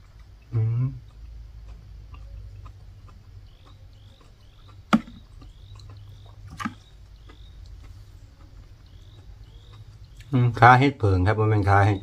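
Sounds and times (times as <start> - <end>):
faint high chirps: 1.9 - 12.0.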